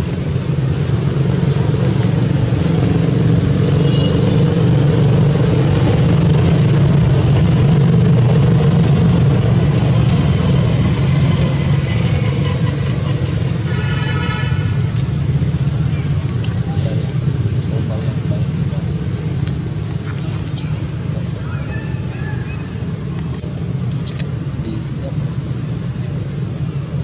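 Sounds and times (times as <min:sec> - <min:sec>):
engine running steadily: 0:00.0 - 0:27.0.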